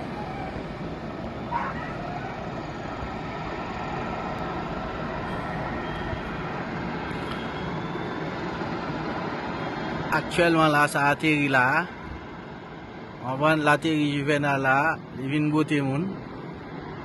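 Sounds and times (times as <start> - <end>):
distant helicopter rumble: 0.0 - 17.0
faint high whine: 1.5 - 11.0.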